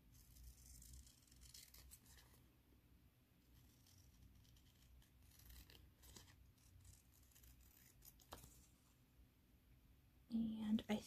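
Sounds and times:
scissors snipping paper: 0.2s - 2.3s, 3.7s - 8.5s.

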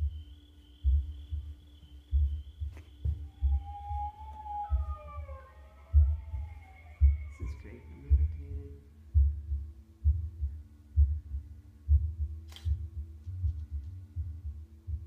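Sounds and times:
heartbeat thumps: 0.0s - 15.0s
low steady hum: 0.0s - 15.0s
sharp click: 12.5s - 12.8s.

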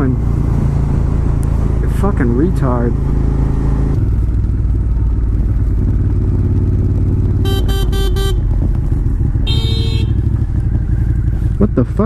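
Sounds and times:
motorcycle engine running: 0.0s - 12.0s
horn beeping: 7.4s - 8.6s, 9.4s - 10.4s.

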